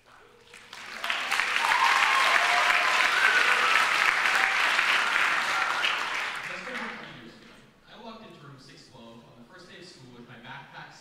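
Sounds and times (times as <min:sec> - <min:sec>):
audience applauding: 0:00.4 - 0:07.2.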